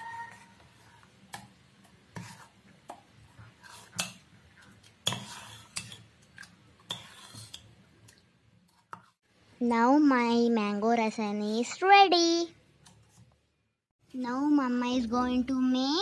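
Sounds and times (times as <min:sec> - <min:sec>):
ladle scraping steel bowl: 0:05.0 - 0:06.1, 0:06.8 - 0:07.7.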